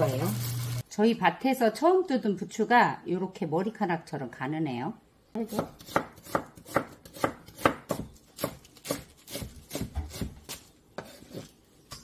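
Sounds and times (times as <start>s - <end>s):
knife slicing onion on board: 5.5s - 12.0s.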